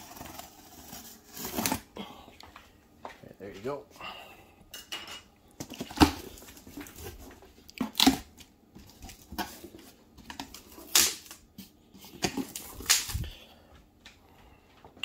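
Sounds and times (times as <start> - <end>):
rustles and clicks of cardboard: 5.6 - 13.3
packing tape ripping: 10.4 - 11.5, 12.3 - 13.3.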